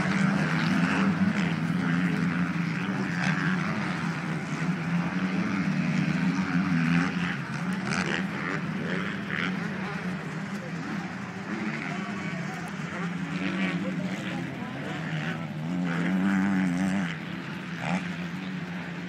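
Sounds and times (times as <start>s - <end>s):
motocross bike engines revving: 0.0s - 19.0s.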